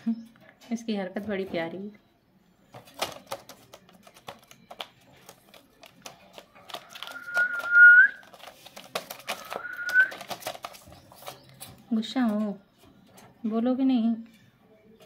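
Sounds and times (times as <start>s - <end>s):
bird moving in wire cage: 2.8s - 11.8s
bird rising whistle: 7.1s - 8.2s.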